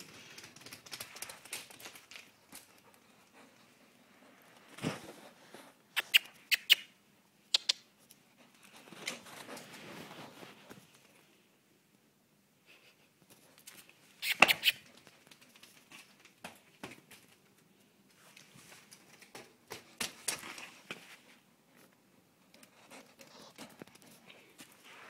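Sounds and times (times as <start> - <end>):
sheep hooves on concrete: 0.0 - 3.6, 14.4 - 21.4.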